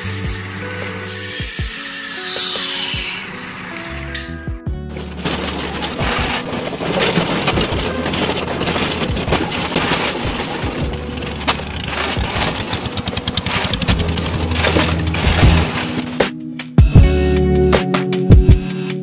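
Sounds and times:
background music with bass line: 0:04.0 - 0:06.4, 0:07.5 - 0:19.0
debarking machine clattering: 0:04.9 - 0:16.3.

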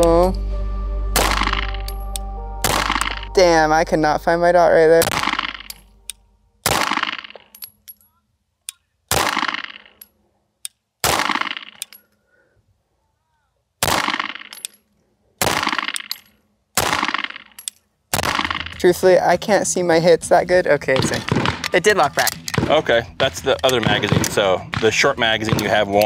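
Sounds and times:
pistol shots: 0:06.6 - 0:07.4, 0:09.1 - 0:09.9, 0:11.0 - 0:11.8, 0:13.8 - 0:14.6, 0:15.4 - 0:16.2, 0:16.8 - 0:17.5, 0:18.1 - 0:18.8, 0:21.0 - 0:22.9, 0:23.7 - 0:26.0.

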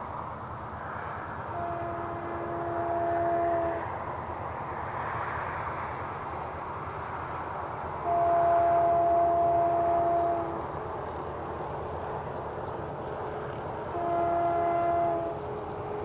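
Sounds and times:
train horn blasts: 0:01.4 - 0:04.0, 0:08.0 - 0:10.9, 0:13.8 - 0:16.0.

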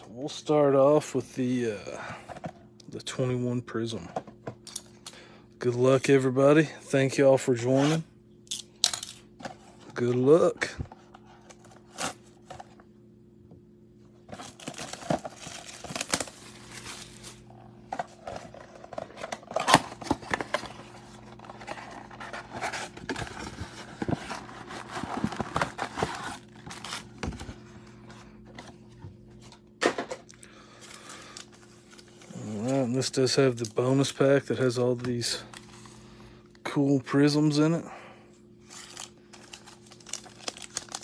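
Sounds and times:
card packs handled: 0:09.0 - 0:12.9, 0:14.2 - 0:37.4, 0:38.6 - 0:41.0
plastic wrap crinkling and tearing: 0:14.4 - 0:17.5, 0:38.7 - 0:41.0.

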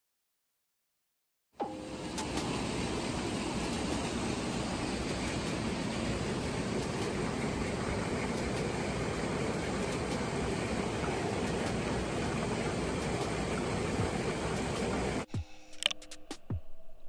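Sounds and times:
stream water rushing: 0:01.7 - 0:15.3.

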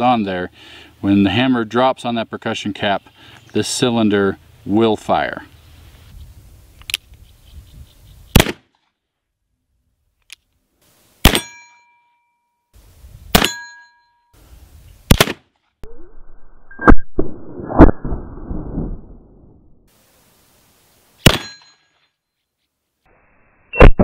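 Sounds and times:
steel plate target ringing: 0:11.2 - 0:12.2, 0:13.4 - 0:14.2, 0:21.3 - 0:22.0.

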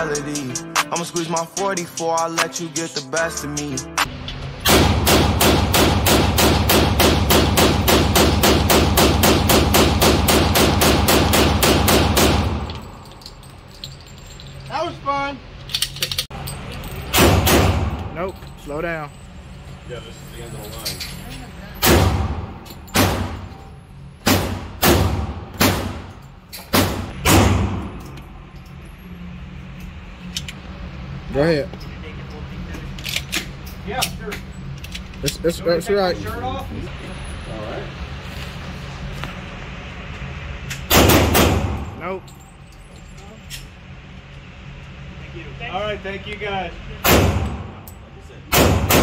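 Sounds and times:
gunshots indoors: 0:04.6 - 0:12.8, 0:17.1 - 0:18.1, 0:21.8 - 0:23.6, 0:24.2 - 0:28.1, 0:40.9 - 0:42.0, 0:47.0 - 0:47.8, 0:48.5 - 0:49.0
pistol firing rapidly indoors: 0:04.7 - 0:12.6, 0:48.5 - 0:49.0.

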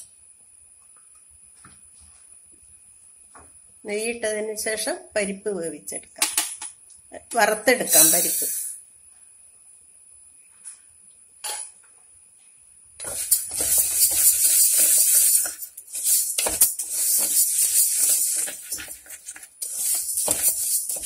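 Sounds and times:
spatula scraping lentils in pan: 0:13.0 - 0:21.0.

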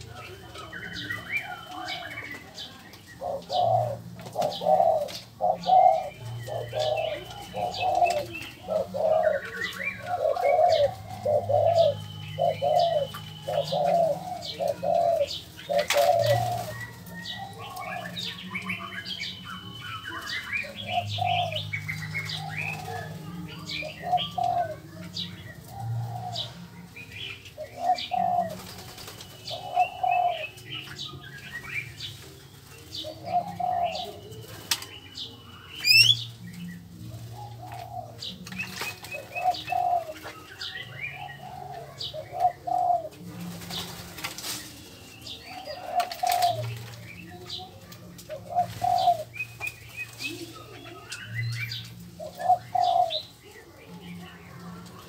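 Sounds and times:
low cooing: 0:01.5 - 0:18.9, 0:20.6 - 0:26.9, 0:41.1 - 0:43.5
low hooting bird notes: 0:03.1 - 0:24.8.

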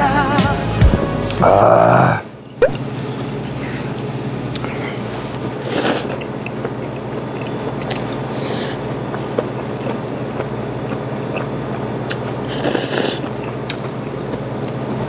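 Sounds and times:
steady low hum: 0:00.7 - 0:15.0
man slurping noodles: 0:04.6 - 0:06.3, 0:08.3 - 0:08.9, 0:12.4 - 0:13.6
wet chewing clicks: 0:05.8 - 0:15.0.

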